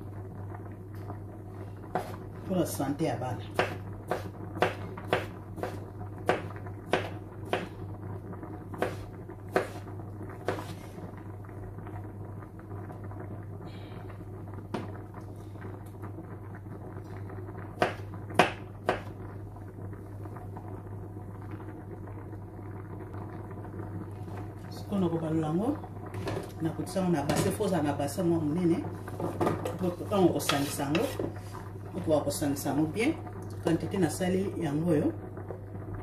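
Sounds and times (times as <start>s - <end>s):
knife chopping on wooden board: 3.6s - 7.7s, 8.8s - 9.8s.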